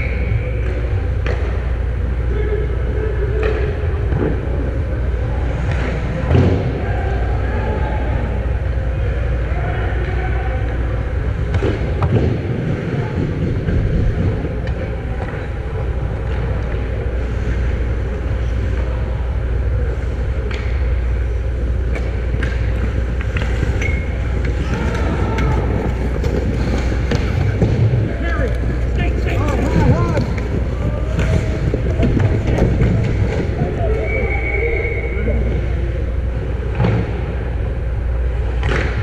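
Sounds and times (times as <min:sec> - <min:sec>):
low rumble: 0:10.6 - 0:39.0
sticks and puck clacking: 0:20.0 - 0:34.0
skates scraping ice: 0:21.2 - 0:34.0.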